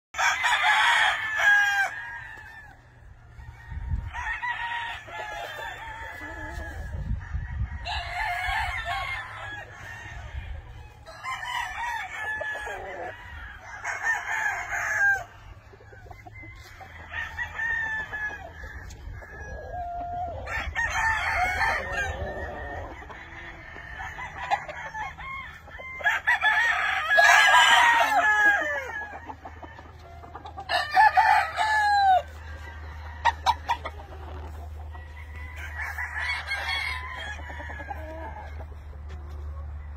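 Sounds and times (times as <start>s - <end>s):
roosters crowing: 0.1s - 39.9s
chickens clucking: 0.2s - 39.9s.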